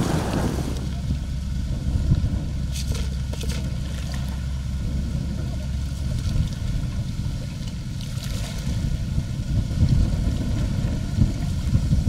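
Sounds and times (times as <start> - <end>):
faint hum: 0.0 - 12.0
low engine rumble: 0.0 - 12.0
light water splashes: 2.6 - 12.0.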